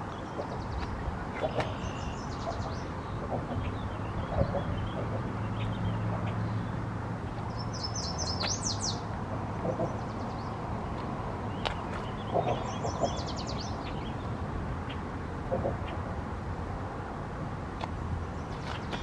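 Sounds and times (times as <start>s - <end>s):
songbird trilling: 7.5s - 9.0s, 11.5s - 14.2s.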